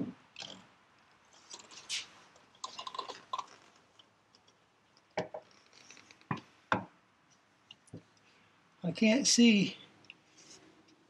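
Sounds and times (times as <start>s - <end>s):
rustling and crackly clicking: 0.4s - 6.5s.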